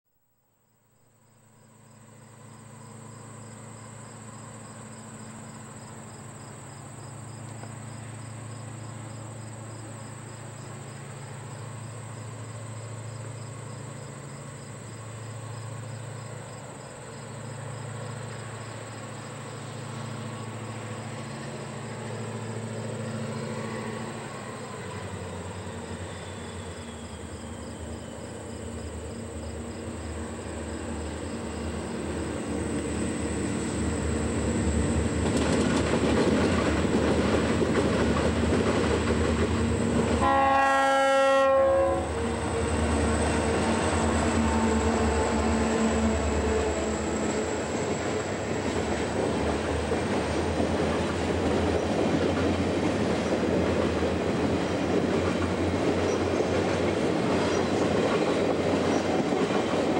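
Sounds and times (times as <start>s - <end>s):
crickets chirping: 0.6s - 40.6s, 41.2s - 59.9s
diesel locomotive engine drone: 1.2s - 59.9s.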